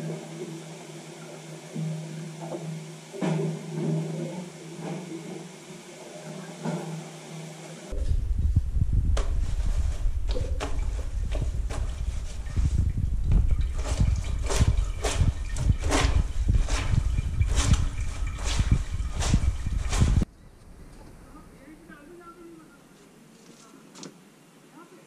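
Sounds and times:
heavy low rumble: 0:07.9 - 0:21.6
clothes scrubbed and splashing: 0:09.2 - 0:20.3.

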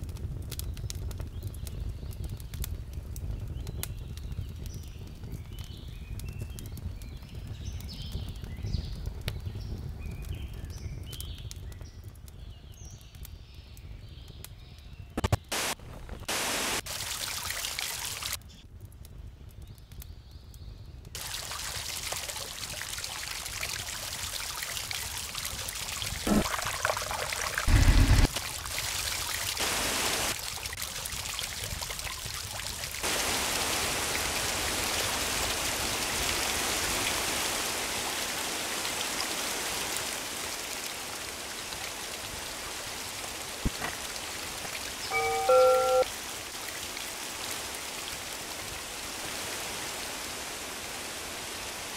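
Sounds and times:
fountain water splashing: 0:15.5 - 0:18.4, 0:21.2 - 0:51.9.

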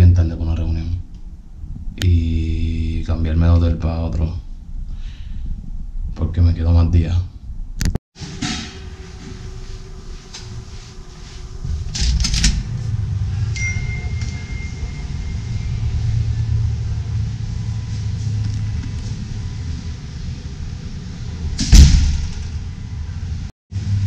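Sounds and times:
thin beep-like tone: 0:13.5 - 0:16.0.

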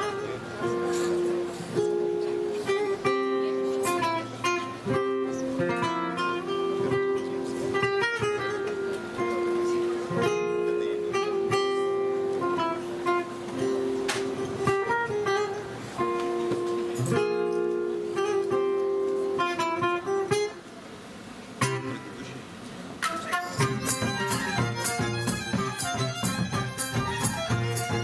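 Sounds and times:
acoustic guitar playing: 0:00.0 - 0:28.0.

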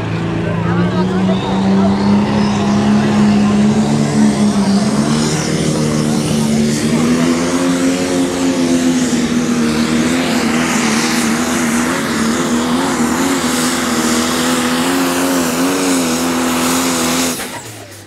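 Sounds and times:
diesel tractor engine under load: 0:00.0 - 0:18.0.

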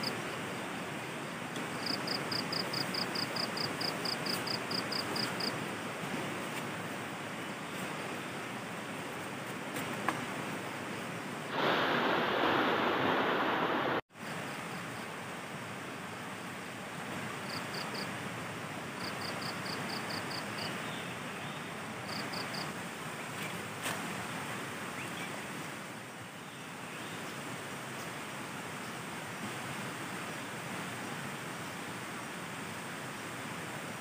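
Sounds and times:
loud burst of noise: 0:11.5 - 0:14.0.

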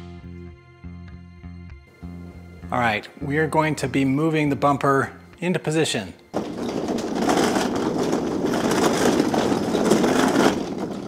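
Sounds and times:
dolly casters rolling over concrete: 0:06.3 - 0:11.0.

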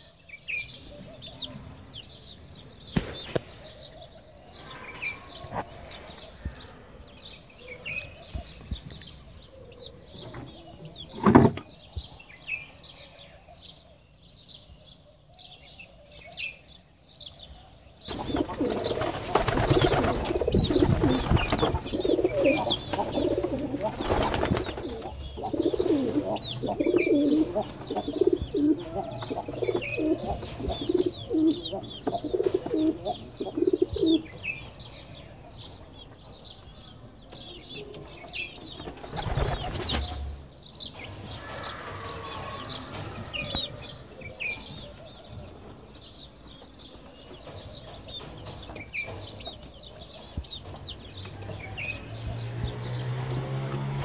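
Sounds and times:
small birds chirping: 0:00.0 - 0:54.0
wings flapping: 0:18.1 - 0:25.2, 0:38.9 - 0:40.2
pigeons cooing: 0:18.1 - 0:34.4.

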